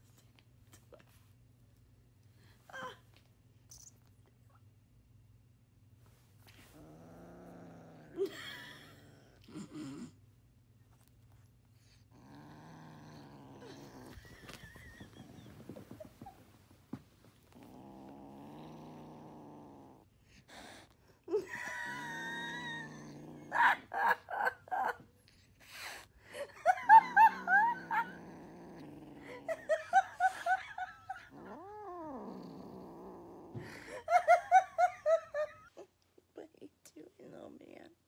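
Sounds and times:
kitten growling: 6.5 - 10.2, 11.8 - 16.5, 17.4 - 24.0, 26.6 - 35.6.

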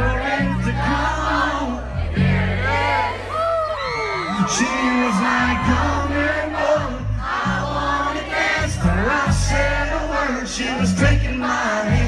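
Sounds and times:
crowd singing along: 0.0 - 12.0
live country band playing: 0.0 - 12.0
person singing: 4.3 - 12.0.

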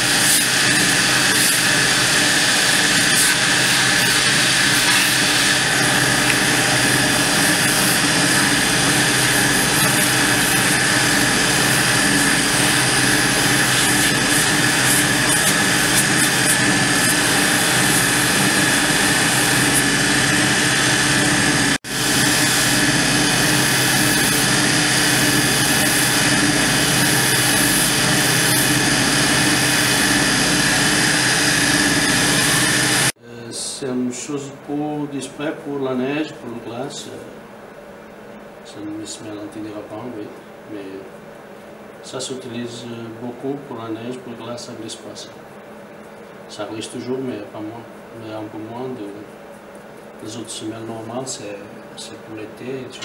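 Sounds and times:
sanding machine whirring: 0.0 - 33.2.

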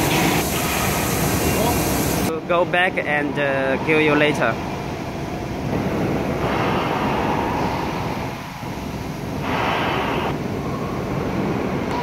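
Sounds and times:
air hissing: 0.0 - 2.3, 5.7 - 10.4
machine hum: 0.0 - 12.0.

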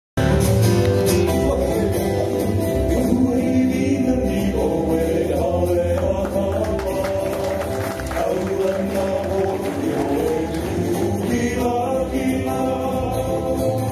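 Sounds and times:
strummed acoustic guitar: 0.2 - 13.9
ukulele: 0.2 - 13.9
upright bass: 0.2 - 13.9
people singing together: 2.9 - 13.9.

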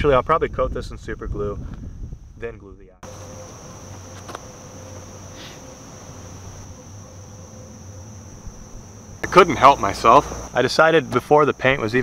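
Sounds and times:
insects droning: 3.0 - 12.0.

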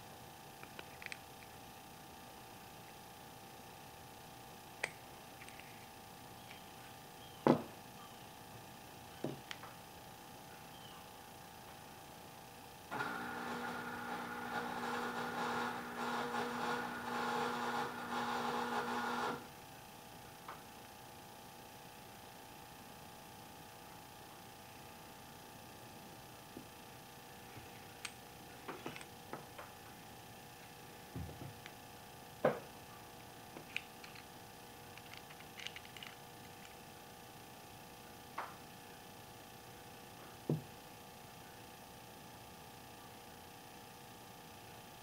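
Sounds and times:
small electric motor humming: 10.7 - 19.6
metal parts clicking in fingers: 34.9 - 36.8.

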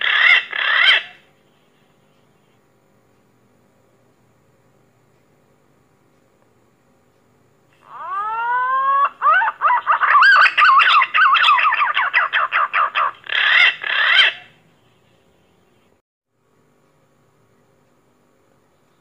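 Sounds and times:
pigeon calling: 0.0 - 1.2, 7.8 - 14.6.

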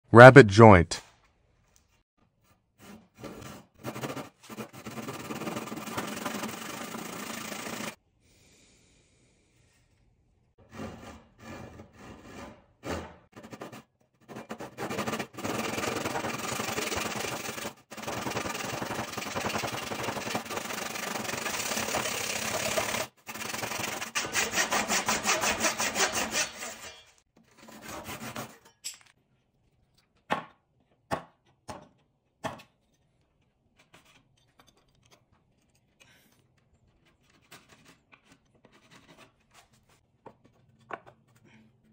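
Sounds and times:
handsaw cutting wood: 2.8 - 8.0, 10.7 - 28.6.

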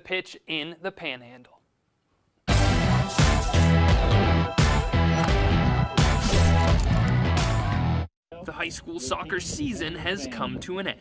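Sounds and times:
theme music with heavy beat: 2.5 - 8.1.

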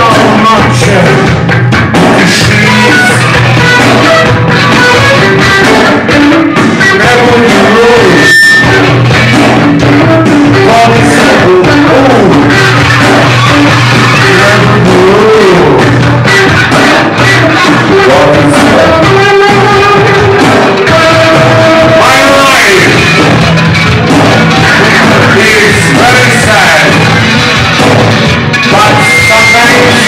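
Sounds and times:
man singing: 0.0 - 23.4, 24.3 - 27.4, 28.5 - 30.0
drums: 0.0 - 30.0
electric guitar: 0.0 - 30.0
live rock band playing: 0.0 - 30.0
short high tone: 7.0 - 9.0.

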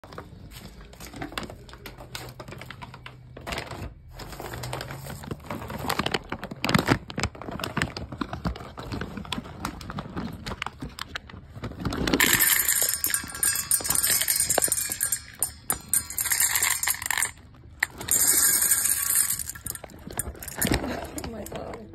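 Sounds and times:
plastic bag crinkling: 0.2 - 21.9
dry kibble rattling: 0.3 - 21.9
kibble pouring into metal bowl: 12.0 - 21.9.

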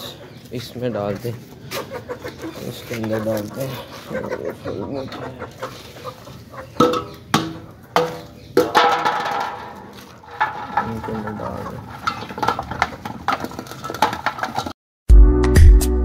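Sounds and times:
chickens pecking: 0.0 - 14.8
steel bowl scraping on concrete: 8.0 - 14.7.

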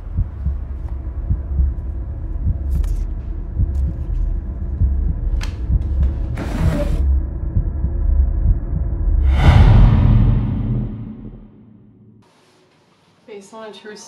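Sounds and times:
low pulse: 7.1 - 12.2
low drone: 9.2 - 12.2.

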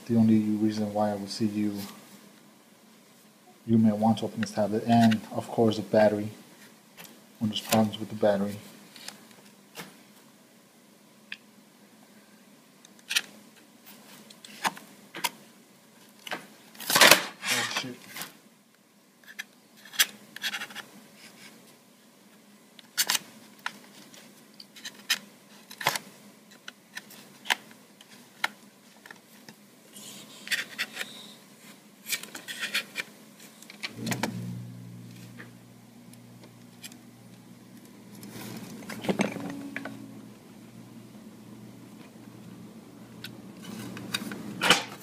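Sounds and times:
low steady hum: 25.4 - 45.0.

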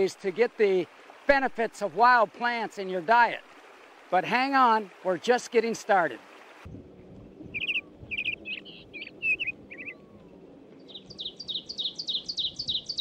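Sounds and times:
bird chirps and warbles: 7.3 - 13.0
fast repeated high bird notes: 7.5 - 10.1.

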